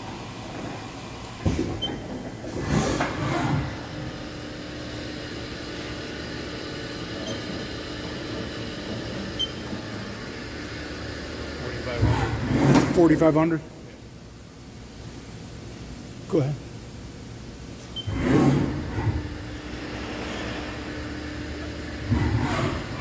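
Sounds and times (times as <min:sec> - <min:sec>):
machine hum: 0:00.0 - 0:23.0
sliding door rumble: 0:18.1 - 0:23.0.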